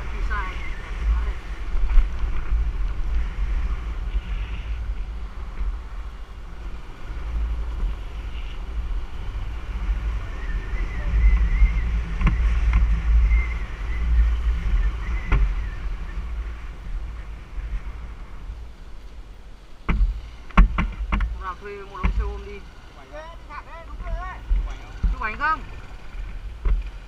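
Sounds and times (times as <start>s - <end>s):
wind buffeting microphone: 0.0s - 22.9s
motorbike running: 0.0s - 27.0s
sharp knocks: 19.9s - 22.3s.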